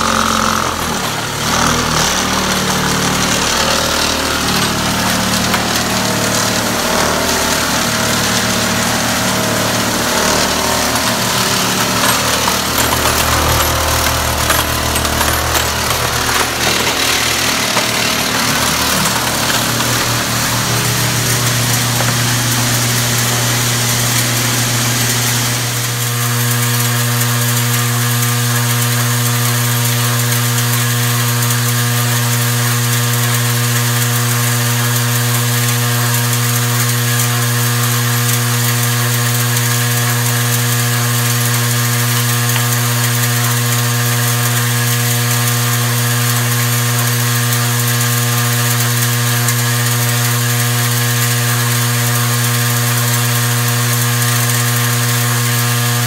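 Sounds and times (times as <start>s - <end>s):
electric machine hum: 0.0s - 31.9s, 32.5s - 56.0s
brass cases scraping and jostling: 0.7s - 24.4s.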